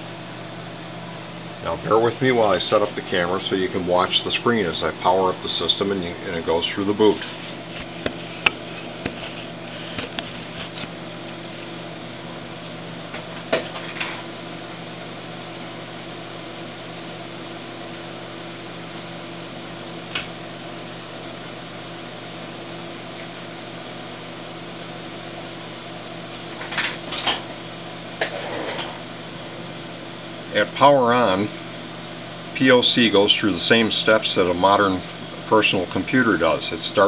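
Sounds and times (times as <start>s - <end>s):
steady low tones: 0.0s - 9.8s
electrical hum of equipment: 0.0s - 37.0s.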